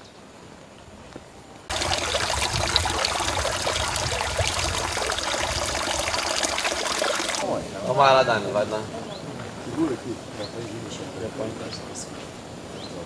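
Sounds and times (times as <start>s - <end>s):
water pouring and splashing: 1.7s - 7.5s.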